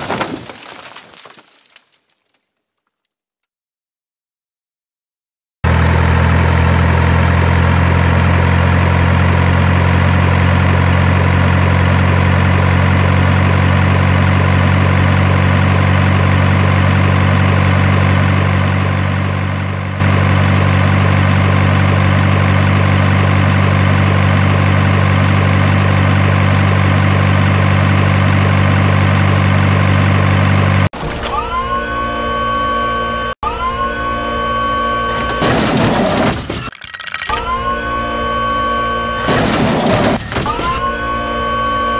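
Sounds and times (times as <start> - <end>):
truck engine idling: 5.7 - 30.9.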